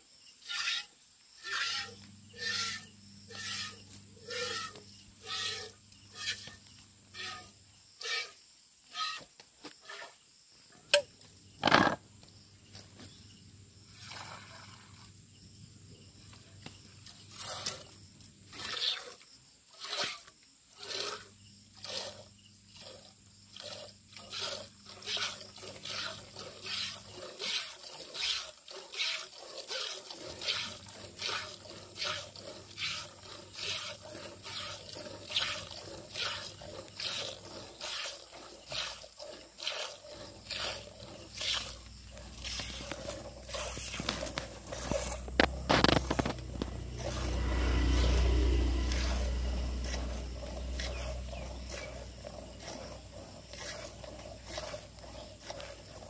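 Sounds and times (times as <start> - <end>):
milk squirting into metal cup: 14.0 - 14.9, 17.1 - 18.0, 20.8 - 56.0.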